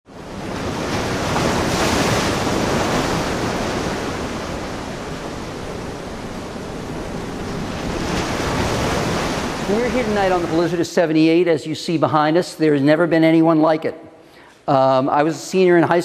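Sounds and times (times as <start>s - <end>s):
wind: 0.0s - 13.9s
ocean surf breaking: 0.1s - 11.1s.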